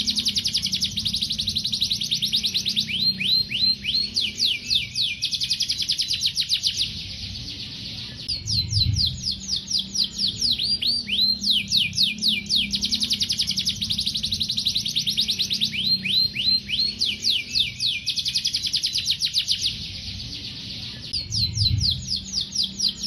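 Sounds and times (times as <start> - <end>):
canary singing trills: 0.0 - 23.0.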